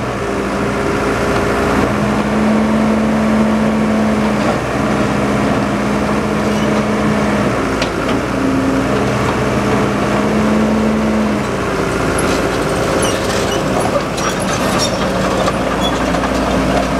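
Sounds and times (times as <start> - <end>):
diesel excavator engine running: 0.0 - 16.9
steel tracks clanking and squeaking: 6.5 - 7.0, 11.4 - 16.9.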